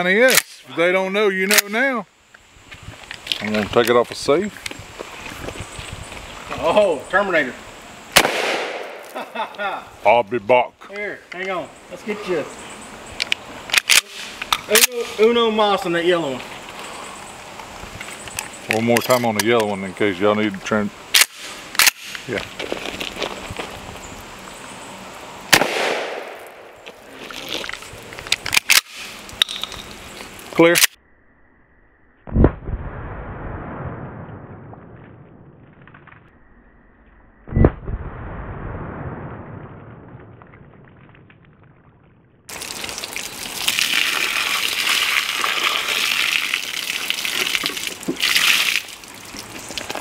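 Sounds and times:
shotgun shot with echo: 8.2s - 9.0s, 25.5s - 26.7s
water gushing and splashing: 42.5s - 50.0s.

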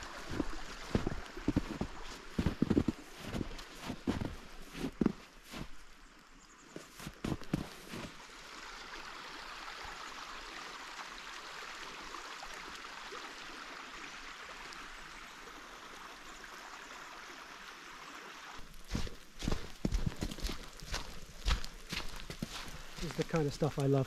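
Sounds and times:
creek water rushing: 0.0s - 6.1s, 7.0s - 24.0s
footsteps: 0.2s - 5.9s, 6.8s - 8.1s, 18.6s - 24.0s.

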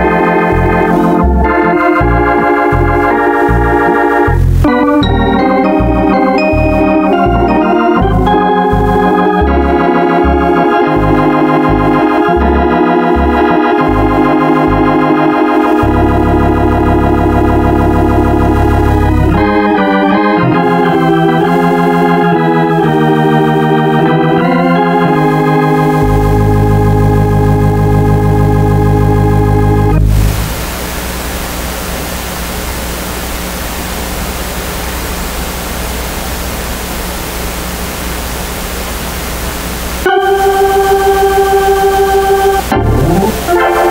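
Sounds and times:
organ music: 0.0s - 30.6s, 40.0s - 43.9s.

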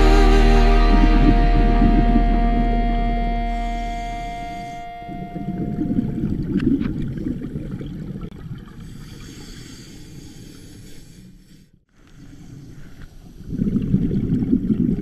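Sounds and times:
background music: 0.0s - 5.3s
muffled underwater rumble: 0.0s - 11.0s.

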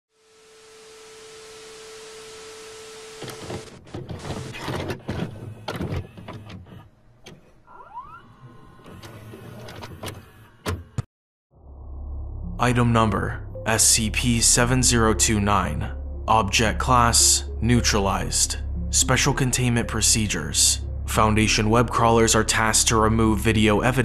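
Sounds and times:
steady hiss with tone: 0.1s - 3.7s
motor whine: 0.2s - 3.8s
tape mechanism clicks and clunks: 3.2s - 7.6s.

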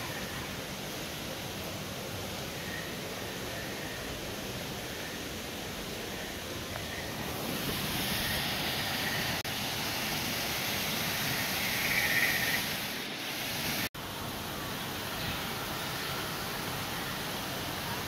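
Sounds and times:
waterfall rushing over rocks: 4.4s - 18.0s.

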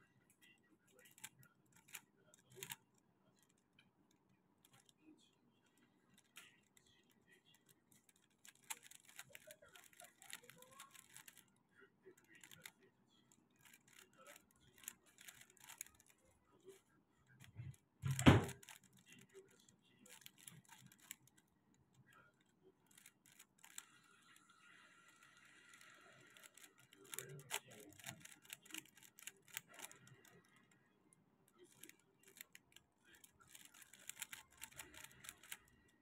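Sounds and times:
puzzle cube clicking: 8.5s - 11.4s, 26.4s - 30.4s, 33.4s - 35.7s.

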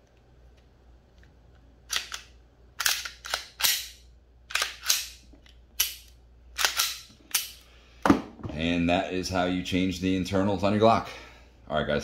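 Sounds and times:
pistol slide metallic clacks: 1.9s - 7.6s.

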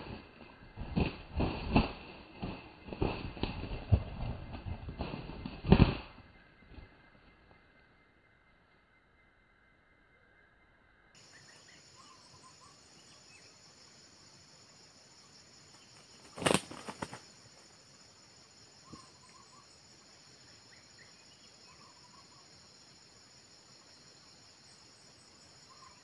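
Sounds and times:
wing beats: 0.0s - 8.0s, 11.2s - 26.0s
insects droning: 0.0s - 26.0s.

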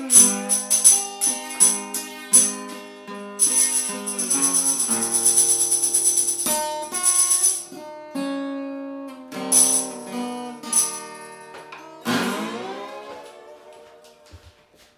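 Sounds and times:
tambourine shaking: 0.0s - 2.7s, 3.4s - 7.7s, 9.5s - 11.6s
acoustic blues guitar: 7.7s - 10.7s, 11.4s - 14.2s.

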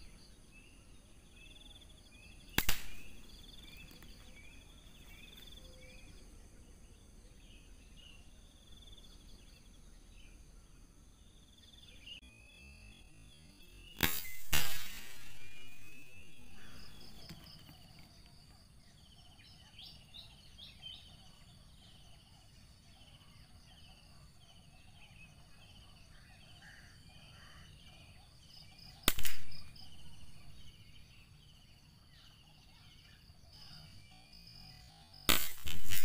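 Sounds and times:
small birds chirping: 0.0s - 36.0s
rifle shot: 2.5s - 3.6s, 14.0s - 17.1s, 29.1s - 29.9s, 35.3s - 36.0s.

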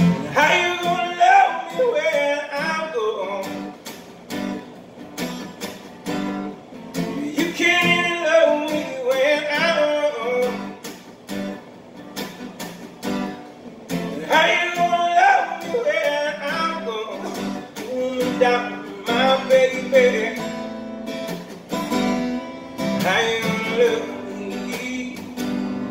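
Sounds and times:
person singing: 0.0s - 3.6s, 7.1s - 10.7s, 14.1s - 20.4s, 23.0s - 25.9s
acoustic guitar strumming: 0.0s - 25.9s.

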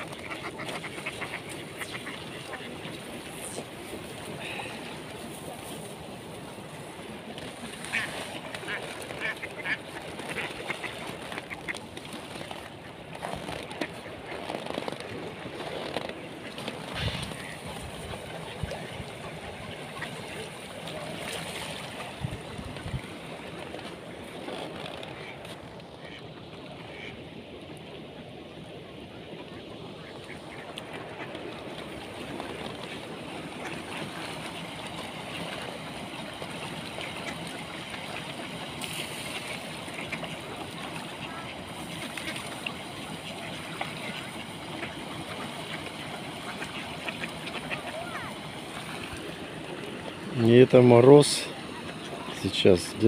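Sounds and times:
ducks quacking: 0.0s - 3.6s, 7.6s - 11.8s, 25.0s - 27.2s, 29.4s - 32.1s, 35.3s - 49.3s
flowing water: 0.0s - 53.0s.

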